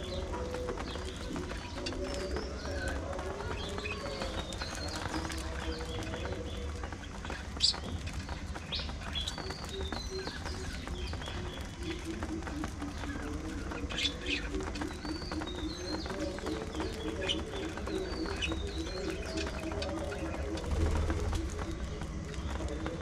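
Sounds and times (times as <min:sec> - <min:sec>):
budgerigars chirping and chattering: 0:00.0 - 0:23.0
low pulsing bird call: 0:08.7 - 0:23.0.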